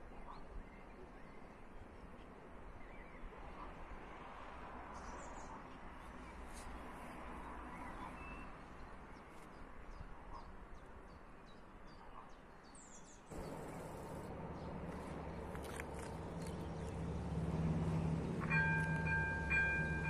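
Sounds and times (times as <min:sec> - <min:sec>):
small birds chirping: 0:07.7 - 0:20.0.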